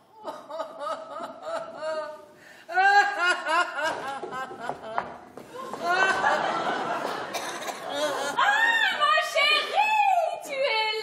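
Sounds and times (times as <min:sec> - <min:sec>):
woman sobbing: 0:00.1 - 0:04.0.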